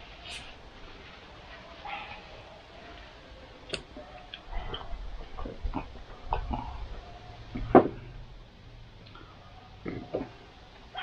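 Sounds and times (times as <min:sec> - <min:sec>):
chewing: 0:03.7 - 0:07.0.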